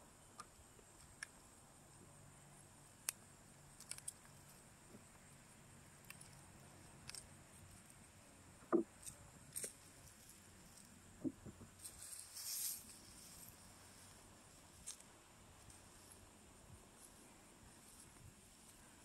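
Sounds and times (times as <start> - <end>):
gloved hands clicking and rustling: 3.0 - 5.3, 6.0 - 7.9
rustling through soil and dry leaves: 3.6 - 19.0.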